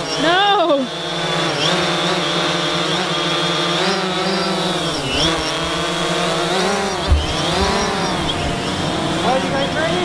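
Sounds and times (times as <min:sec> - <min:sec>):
drone propellers buzzing: 0:00.0 - 0:10.0
low thump: 0:06.2 - 0:08.6.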